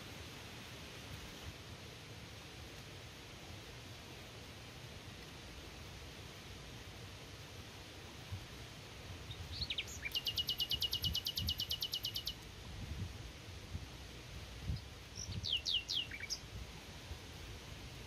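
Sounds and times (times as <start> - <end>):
songbird singing: 9.2 - 12.5, 14.6 - 16.6.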